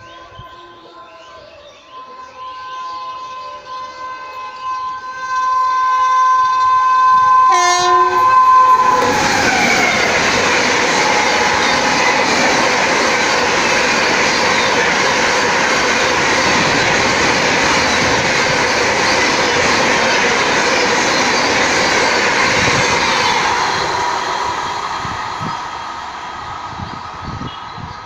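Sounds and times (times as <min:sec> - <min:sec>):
train wheels rushing on rails: 0:06.4 - 0:28.0.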